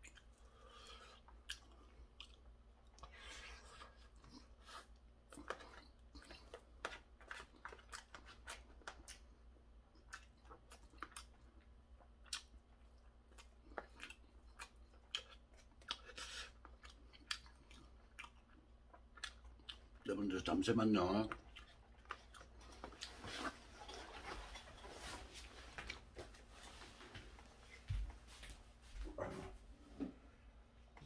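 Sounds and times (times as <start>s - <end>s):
chewing crunchy cartilage: 0.0s - 20.2s, 21.0s - 24.6s.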